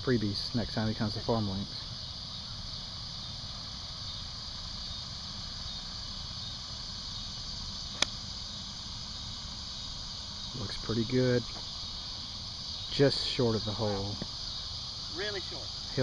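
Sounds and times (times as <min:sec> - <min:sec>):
insects chirring: 0:00.0 - 0:16.0
golf club striking ball: 0:07.9 - 0:08.2.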